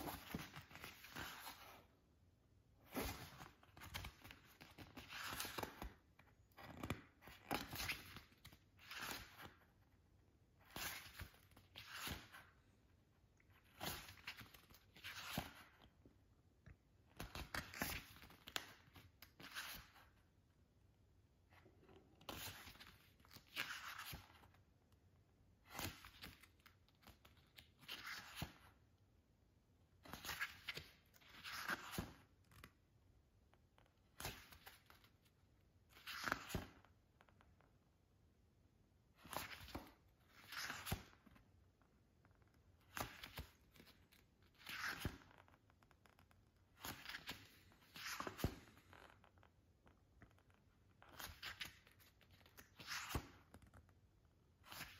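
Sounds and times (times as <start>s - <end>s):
pages turning: 0.0s - 1.9s, 30.0s - 32.7s, 35.9s - 36.9s, 39.2s - 41.4s, 42.8s - 53.8s.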